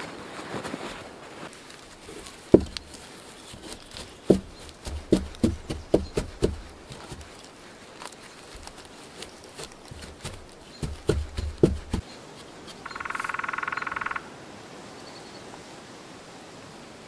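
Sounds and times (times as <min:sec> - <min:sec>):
hollow wooden knocks: 0:02.1 - 0:07.4, 0:09.6 - 0:12.0.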